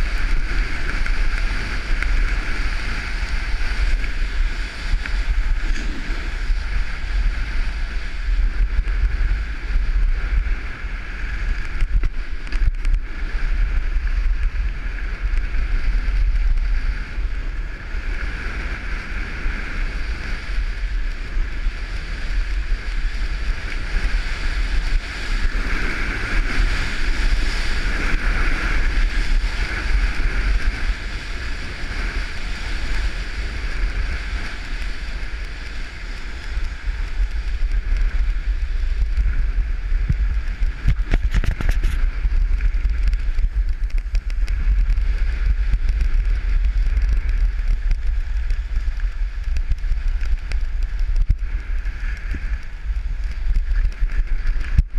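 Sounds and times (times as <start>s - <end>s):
wind buffeting microphone: 0.0s - 54.9s.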